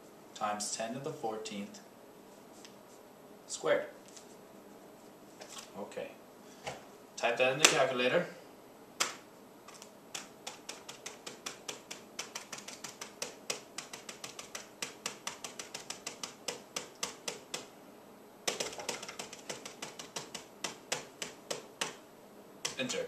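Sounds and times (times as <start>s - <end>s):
calculator keys clicking: 10.2s - 17.7s, 18.5s - 22.0s.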